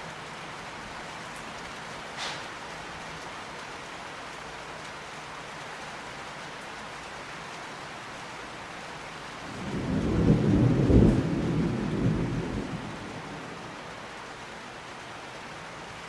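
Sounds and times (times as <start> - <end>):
steady rain hiss: 0.0 - 16.0
thunder rumbling: 9.4 - 13.9.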